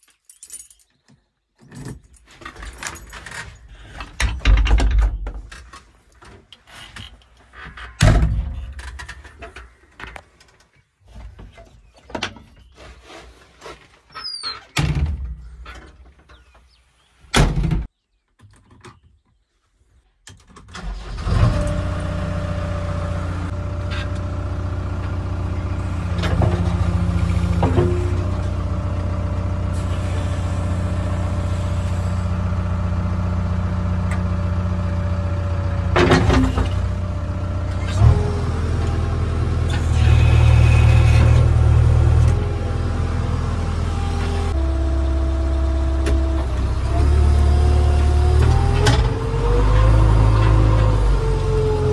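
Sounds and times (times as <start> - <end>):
diesel engine running: 20.9 - 51.9
clunks: 23.4 - 31.9, 35.4 - 42.7, 45.8 - 51.9.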